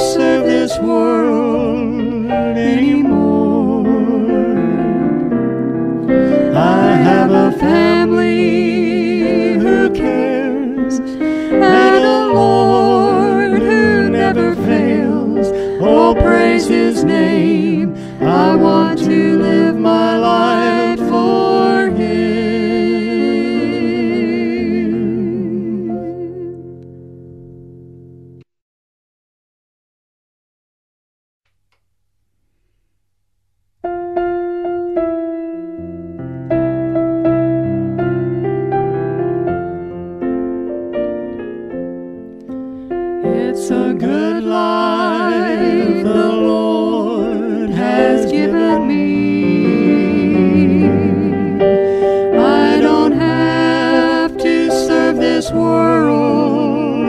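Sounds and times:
person singing with vibrato: 0.0s - 26.6s, 43.2s - 57.0s
instrumental accompaniment: 0.0s - 28.4s
piano bass notes: 0.0s - 28.4s, 33.4s - 57.0s
slow gospel piano chords: 0.0s - 28.4s, 33.8s - 57.0s.

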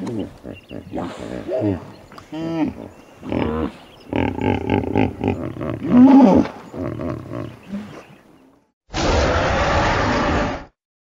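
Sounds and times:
hippopotamus grunting calls: 0.0s - 8.3s.

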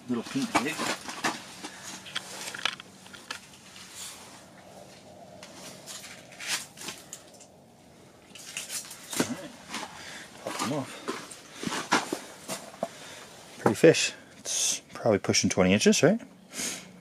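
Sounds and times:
fishing rod and reel handling: 1.9s - 3.9s.

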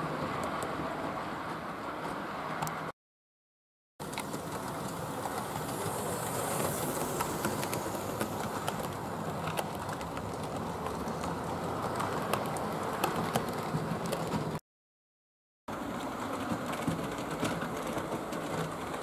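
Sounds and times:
model train rumble: 4.0s - 14.5s
wheels clicking over rail joints: 4.0s - 14.6s, 15.7s - 19.0s.

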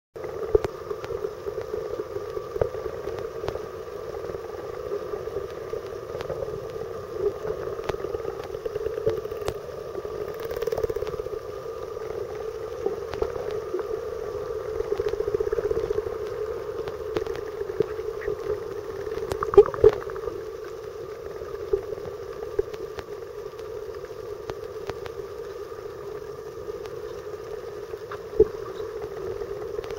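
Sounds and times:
underwater boat engine drone: 0.2s - 29.9s
faint clicks: 5.4s - 11.3s, 28.0s - 29.9s.

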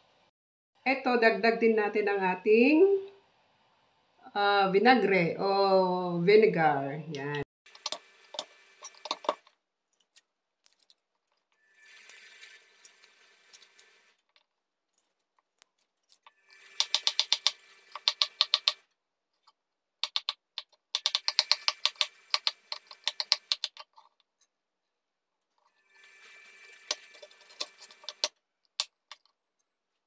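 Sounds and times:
knife scraping and clicking on board: 7.8s - 11.0s, 15.0s - 18.8s, 20.0s - 24.3s, 26.8s - 29.4s.

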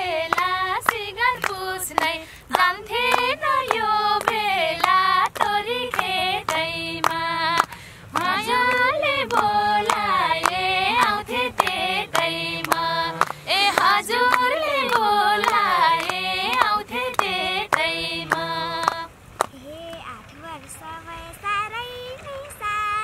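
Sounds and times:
group clapping: 0.0s - 20.1s
high female voices singing: 0.0s - 23.0s
soft voices: 0.0s - 23.0s.

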